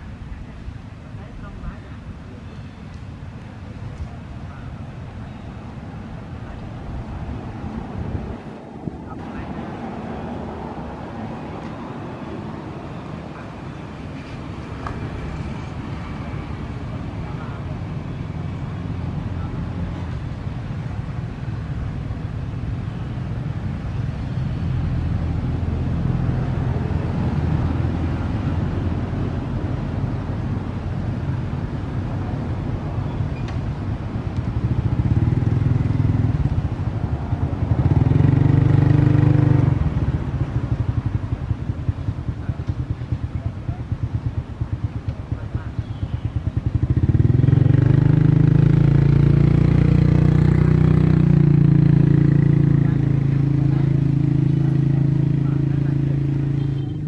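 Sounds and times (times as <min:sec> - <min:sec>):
motor engine droning: 0:21.2 - 0:57.0.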